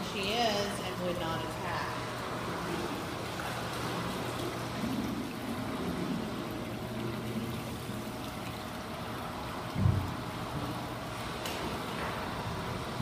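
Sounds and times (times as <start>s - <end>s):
steady low hum: 0.0s - 13.0s
water trickling in aquarium: 0.0s - 13.0s.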